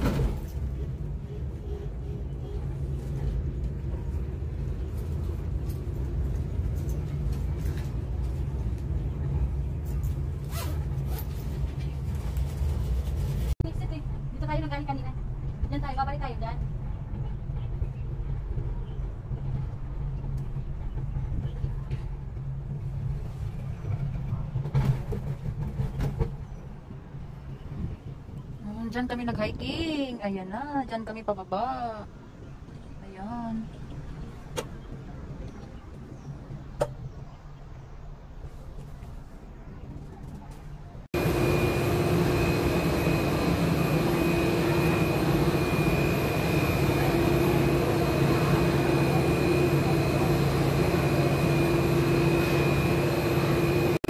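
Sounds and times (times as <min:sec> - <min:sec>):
cable car cabin rumble: 0:00.0 - 0:54.0
clunks and rattles: 0:23.7 - 0:27.0
thin high whine: 0:41.2 - 0:54.0.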